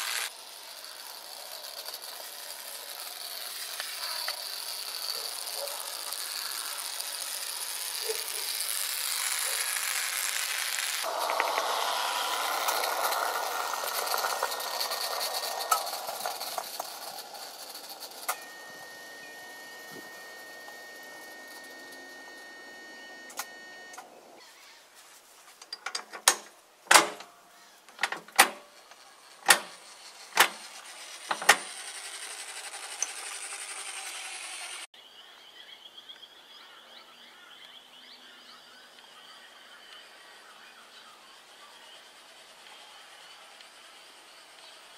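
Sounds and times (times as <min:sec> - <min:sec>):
model tram running rattle: 0:00.0 - 0:23.1, 0:28.2 - 0:34.9
steady high whine: 0:00.0 - 0:24.5, 0:37.3 - 0:44.9.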